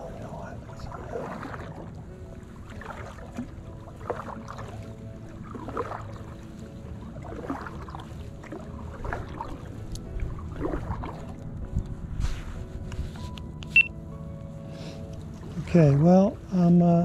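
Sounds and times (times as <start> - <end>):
paddle splashing in water: 0.0 - 11.6.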